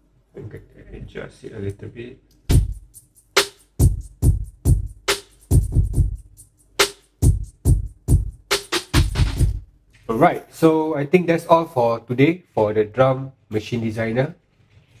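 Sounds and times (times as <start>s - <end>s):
hip-hop drum machine beat: 2.5s - 9.7s.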